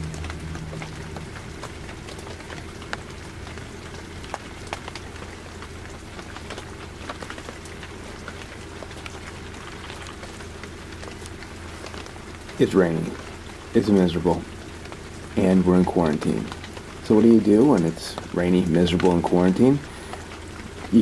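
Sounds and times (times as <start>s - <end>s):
low steady hum: 0.0s - 21.0s
steady rain falling: 0.0s - 21.0s.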